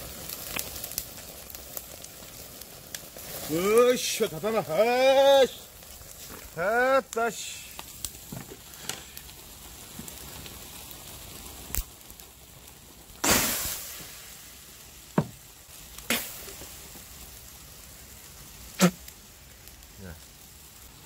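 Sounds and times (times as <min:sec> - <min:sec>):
hiss of coals being doused: 0:00.0 - 0:21.0.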